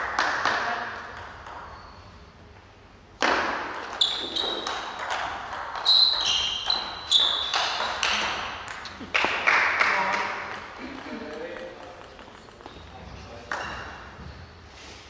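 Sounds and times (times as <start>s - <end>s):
table tennis ball clicking: 10.5s - 12.9s.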